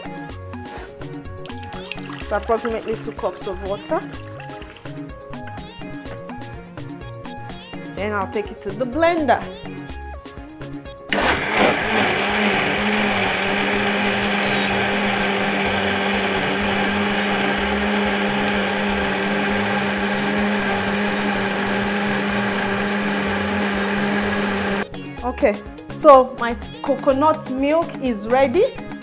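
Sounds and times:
blender running: 11.1 - 24.8.

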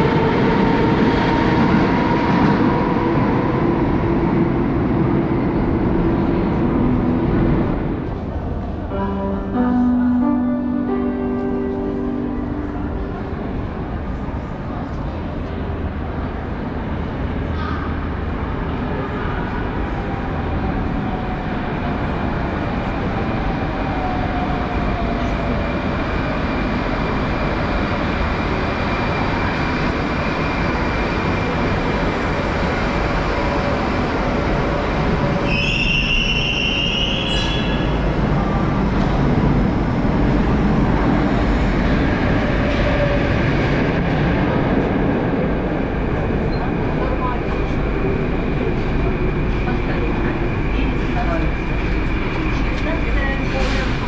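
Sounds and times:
metro train braking to a stop: 17.4 - 54.0.

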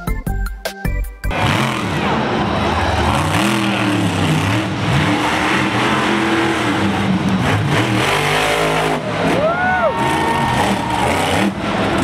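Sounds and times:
truck engine revving: 1.3 - 12.0.

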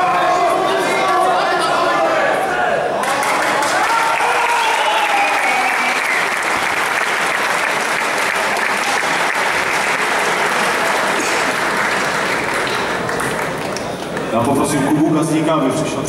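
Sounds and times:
crowd applauding: 3.0 - 14.4.

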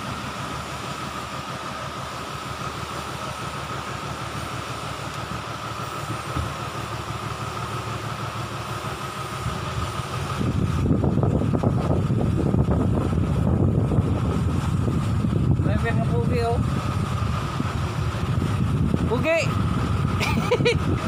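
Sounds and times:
motor humming: 8.8 - 21.0
rough low rumble: 9.4 - 21.0.

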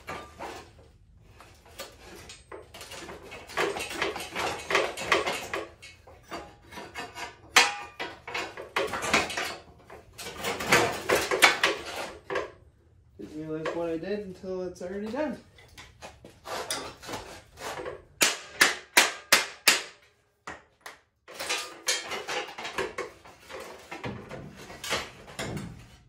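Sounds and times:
rusty metal parts clanking: 1.6 - 12.6, 21.3 - 26.0.

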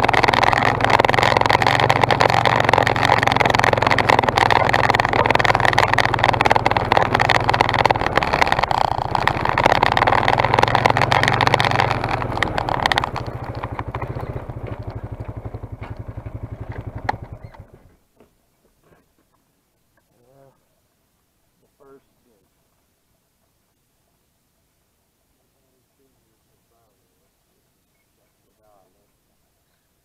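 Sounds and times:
atv engine running and idling: 0.0 - 18.3.

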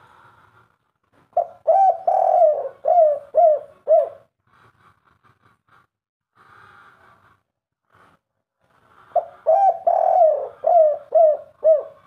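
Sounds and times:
dove cooing: 1.4 - 4.3, 9.1 - 12.0.

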